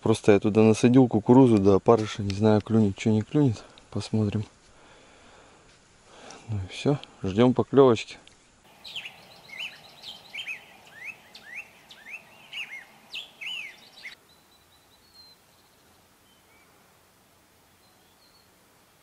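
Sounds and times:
distant bird note: 8.7 - 14.2
songbird chirping and whistling: 8.7 - 16.7.

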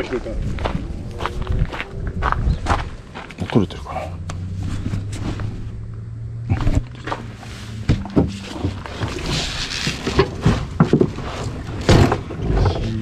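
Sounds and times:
engine idling hum: 0.1 - 13.0
knocks and rustles of climbing in: 4.4 - 5.8, 6.4 - 13.0.

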